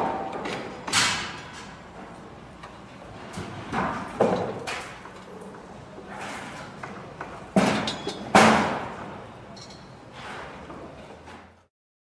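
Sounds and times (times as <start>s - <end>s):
construction bangs and thuds: 7.5s - 9.2s.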